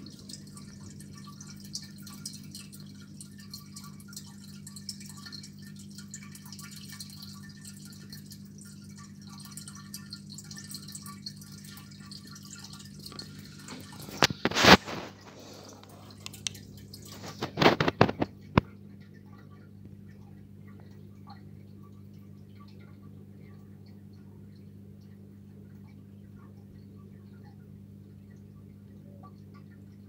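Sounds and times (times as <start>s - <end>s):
aquarium water dripping and trickling: 0.0s - 30.0s
steady low hum: 0.0s - 30.0s.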